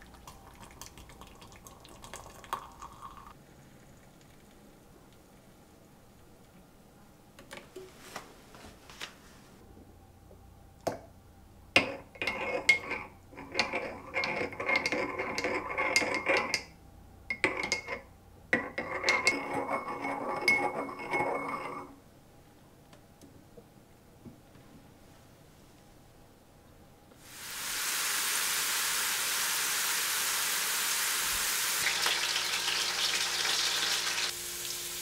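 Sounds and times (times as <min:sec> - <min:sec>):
hot water pouring into mug: 0:00.0 - 0:04.8, 0:27.2 - 0:35.0.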